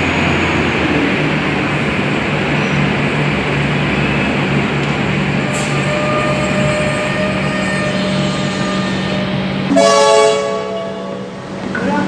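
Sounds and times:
electric train humming: 0.0s - 12.0s
train horn blast: 5.4s - 11.4s.

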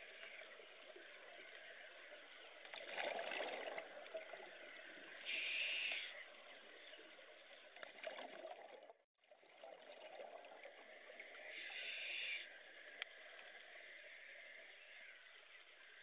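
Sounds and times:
rush of exhaled bubbles: 2.7s - 4.5s, 7.8s - 10.9s.

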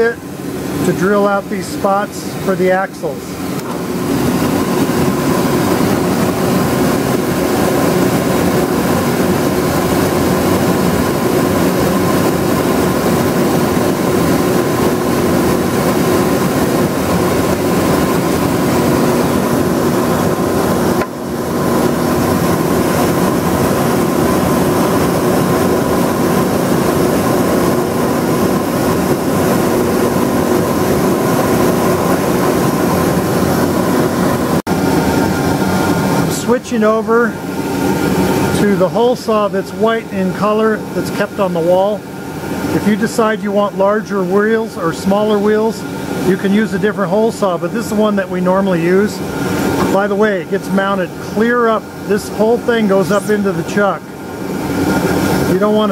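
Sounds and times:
dust collection vacuum running: 0.0s - 55.9s.

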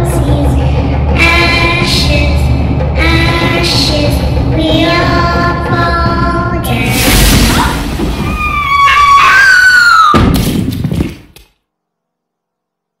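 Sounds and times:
loud thud: 6.9s - 8.7s, 10.1s - 11.3s.

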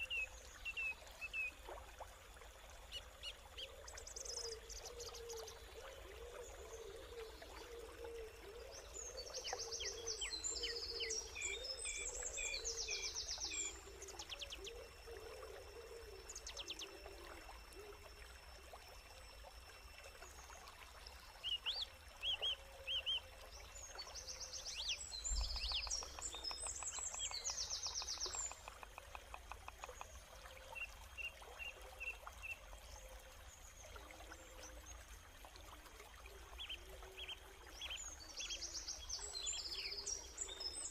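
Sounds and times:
faint running water: 0.0s - 40.9s
birds singing: 2.9s - 15.2s, 21.4s - 30.1s.

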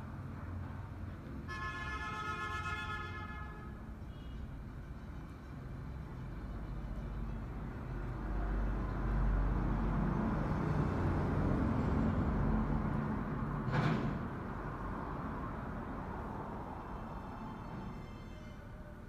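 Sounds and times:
road vehicle passing by: 4.5s - 19.0s.

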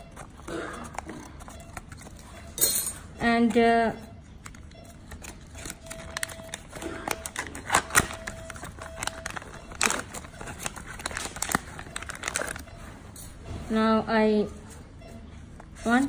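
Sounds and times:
foil pouch crinkling: 4.4s - 12.8s.

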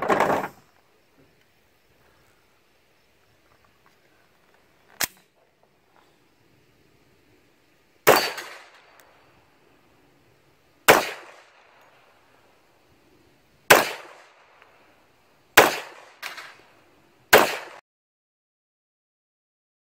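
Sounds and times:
pistol shots with echo: 8.0s - 8.9s, 10.9s - 11.7s, 13.7s - 14.4s, 15.6s - 16.6s, 17.3s - 17.8s.

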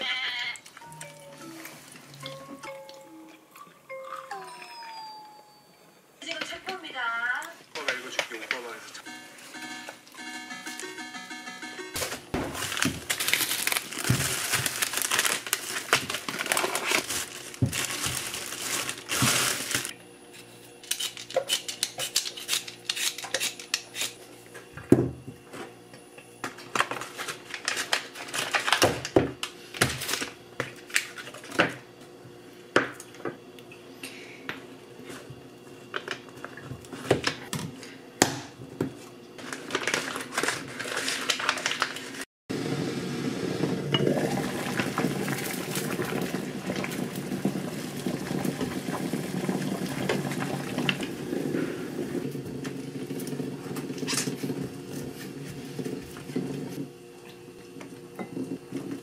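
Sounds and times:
foil wrapper crinkling: 12.0s - 19.9s, 26.7s - 29.1s, 39.4s - 42.2s.

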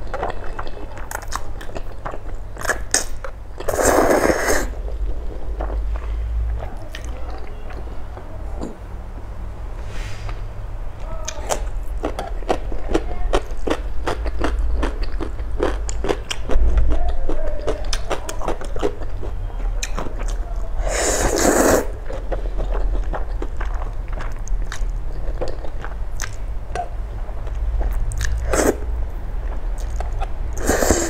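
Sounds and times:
wet chewing: 0.0s - 8.8s, 11.3s - 31.0s
low steady hum: 0.0s - 31.0s
noodle slurp: 2.6s - 4.8s, 20.8s - 22.0s, 28.2s - 28.9s, 30.6s - 31.0s.

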